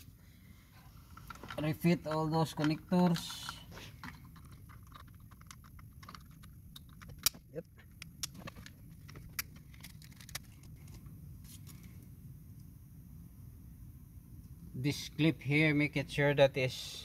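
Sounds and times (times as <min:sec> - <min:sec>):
steady low hum: 0:00.0 - 0:17.0
plastic connectors clicking and rattling: 0:01.2 - 0:11.0
sharp plastic snaps: 0:05.3 - 0:10.7.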